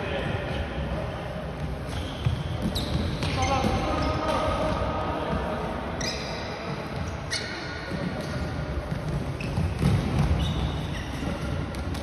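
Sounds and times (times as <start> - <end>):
shoe squeaks: 1.9 - 4.5, 6.0 - 12.0.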